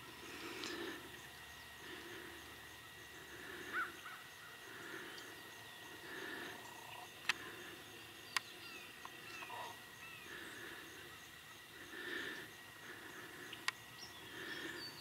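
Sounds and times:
faint high hum: 0.0 - 15.0
soft regular pulsing: 0.0 - 15.0
bird chirp: 1.1 - 12.4, 13.1 - 15.0
sharp clicks: 7.2 - 7.4, 13.6 - 13.8.

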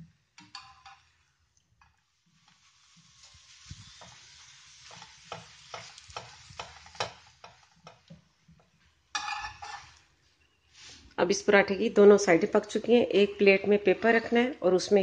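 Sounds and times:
flatbread sizzling in oil: 0.0 - 11.1.

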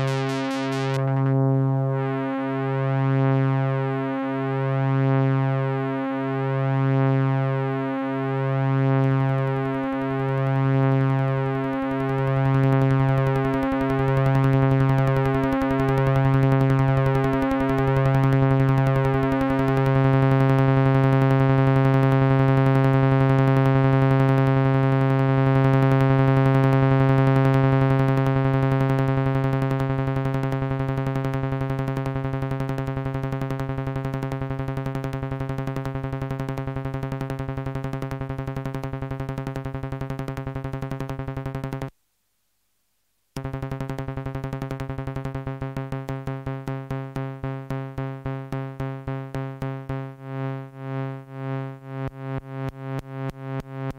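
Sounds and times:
buzzy synthesizer drone: 0.0 - 41.9, 43.4 - 53.9.

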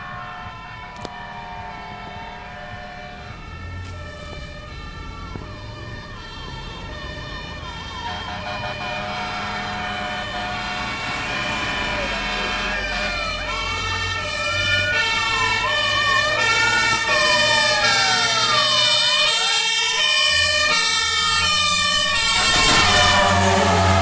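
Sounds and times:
fire engine siren wailing: 0.0 - 24.0
horn tones: 8.0 - 13.5.

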